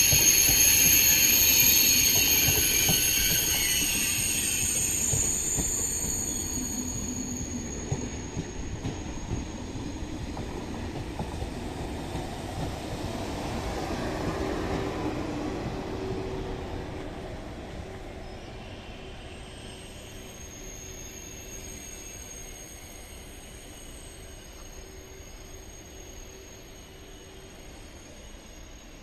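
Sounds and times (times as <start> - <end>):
train wheels rumbling: 0.0 - 18.1
train wheel squeal: 0.0 - 29.0.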